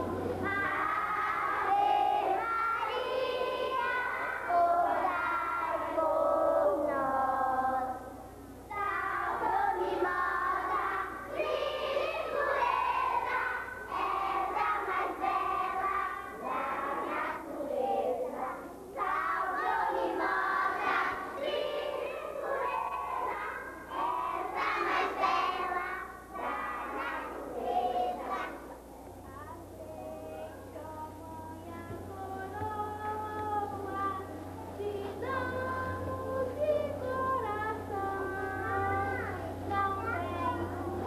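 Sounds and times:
children singing together: 0.0 - 28.8, 29.8 - 41.0.

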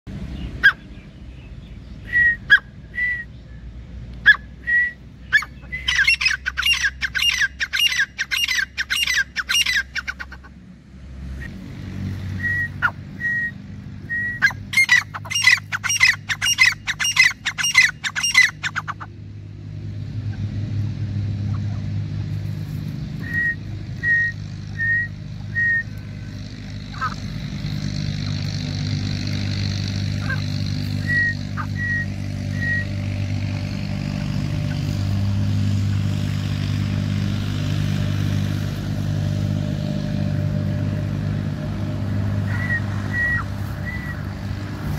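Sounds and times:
francolins calling: 4.2 - 10.5, 12.4 - 19.2, 23.1 - 33.2, 42.3 - 44.5.

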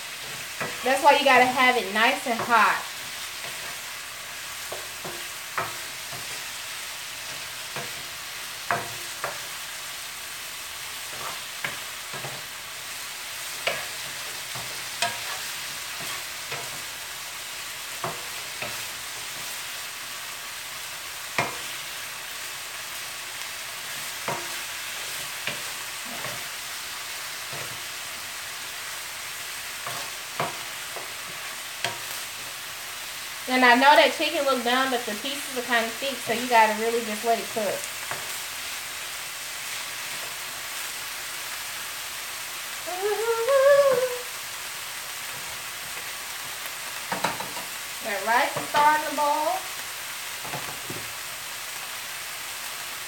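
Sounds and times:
wooden spoon scraping a pan: 0.0 - 9.8, 10.9 - 17.0, 23.8 - 28.2, 29.6 - 38.4
chicken sizzling in a skillet: 0.0 - 53.0.

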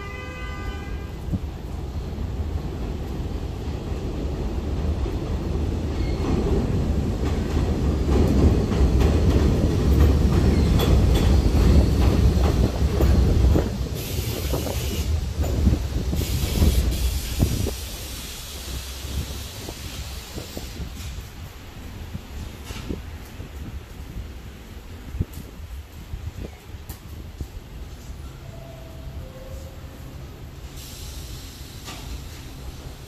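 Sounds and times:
train rumbling past on steel track: 0.0 - 33.0
wheels clicking over rail joints: 5.1 - 17.0.

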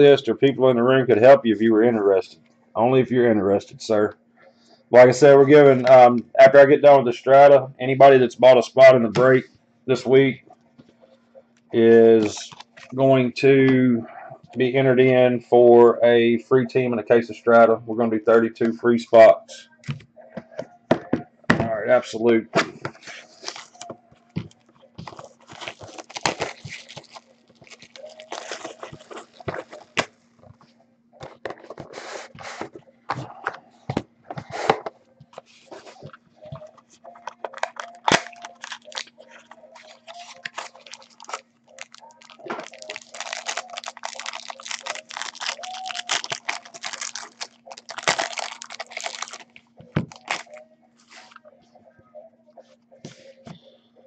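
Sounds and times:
cards and boxes clicking: 24.5 - 30.1, 37.2 - 50.5
foil wrappers tearing and crinkling: 25.0 - 30.1, 37.4 - 50.6.

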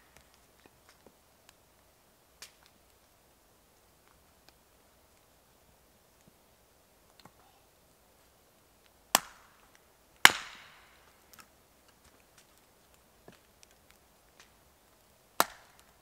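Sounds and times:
axe chopping wood: 10.2 - 10.7, 15.4 - 15.8.

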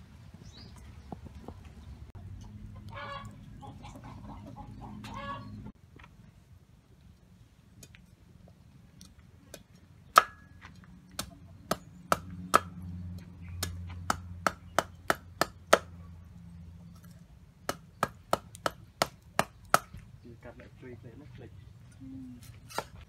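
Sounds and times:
cleaver chopping on wooden board: 10.1 - 10.5, 11.2 - 12.8, 17.7 - 20.0.

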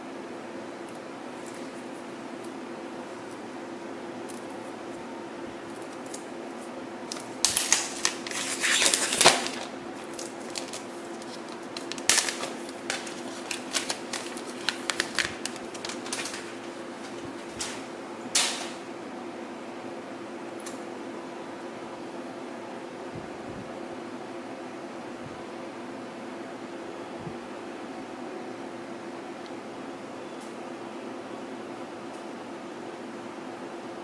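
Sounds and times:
steady low hum: 0.0 - 34.0
plastic film crinkling: 5.6 - 18.8.

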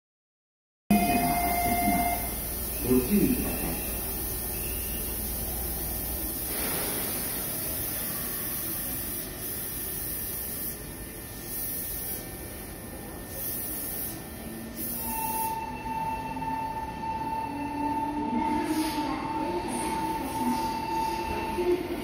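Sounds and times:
high-pitched tone: 0.9 - 5.1
train steady hiss: 0.9 - 15.6.

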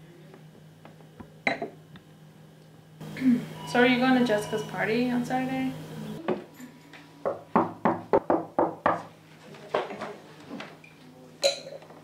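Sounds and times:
knocking on wooden door: 7.3 - 9.1.

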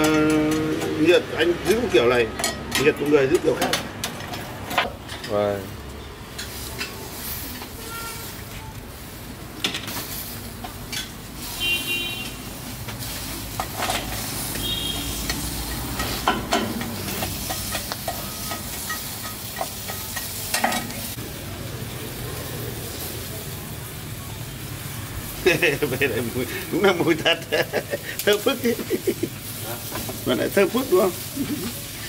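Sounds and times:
meatballs sizzling on a grill: 0.0 - 32.0
sharp clicks and crackles: 12.2 - 21.1.

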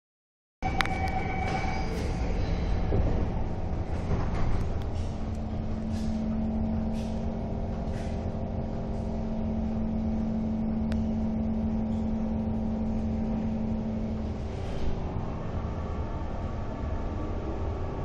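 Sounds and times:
train electrical hum: 0.6 - 18.0
train low rumble: 0.6 - 18.0.

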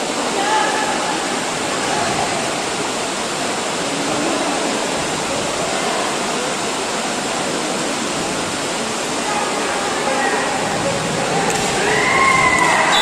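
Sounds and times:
crowd shouting and talking: 0.0 - 13.0.

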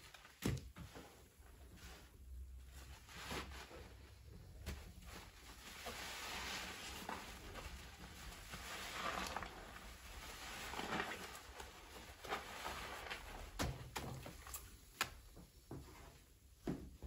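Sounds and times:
wet foam fizzing crackle: 5.7 - 13.5.

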